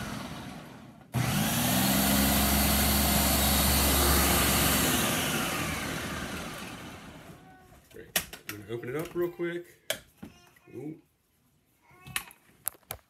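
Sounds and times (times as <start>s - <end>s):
food processor motor: 0.0s - 7.4s.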